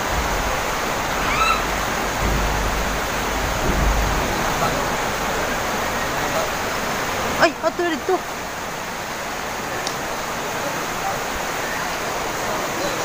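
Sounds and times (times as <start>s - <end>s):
low rumble: 0.0s - 8.7s
water rushing over rocks: 0.0s - 13.0s.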